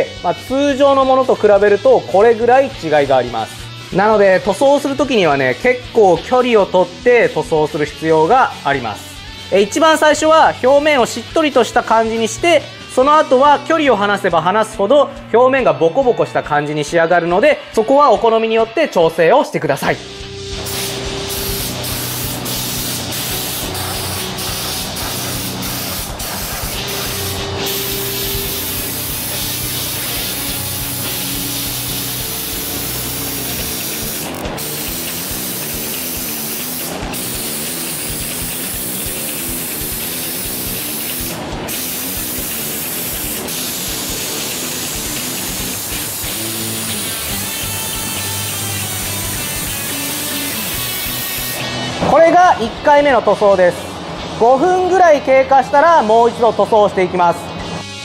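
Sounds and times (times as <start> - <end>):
spray gun hissing: 20.4 - 51.7.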